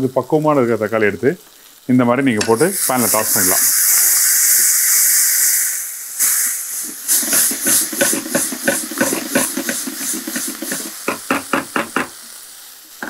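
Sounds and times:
tomatoes sizzling in hot oil: 0.0s - 13.0s
spatula scraping and knocking pan: 6.8s - 12.2s.

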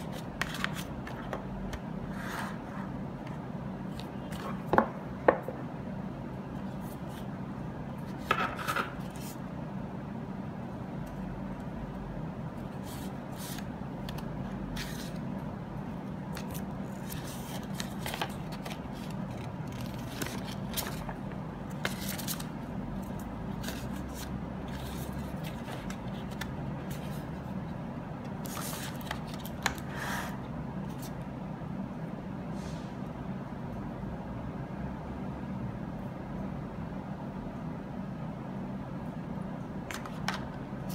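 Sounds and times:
packaging rustling and scraping: 16.4s - 27.3s.

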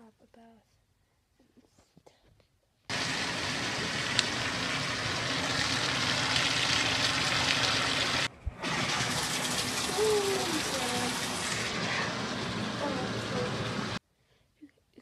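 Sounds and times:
water running into bathtub: 2.9s - 14.0s.

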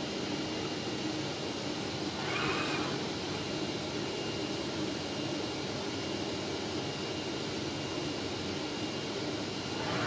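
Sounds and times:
machine hum and hiss: 0.0s - 10.0s
tool head whir: 2.2s - 3.4s, 9.6s - 10.0s.

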